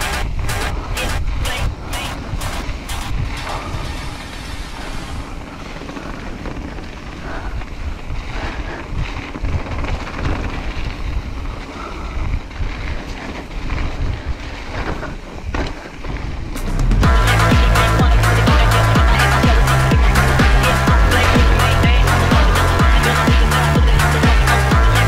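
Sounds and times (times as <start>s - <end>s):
wind buffeting microphone: 0.0s - 17.2s
bike clattering over bumps: 0.0s - 25.0s
bike tyres rolling on dirt: 0.0s - 25.0s.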